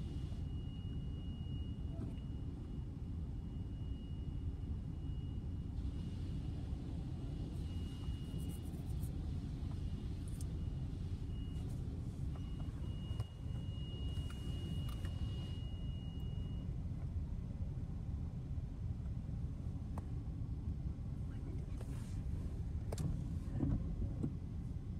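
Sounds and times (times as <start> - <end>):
vehicle cabin rumble: 0.0 - 24.9
faint high-pitched tone: 10.5 - 16.7.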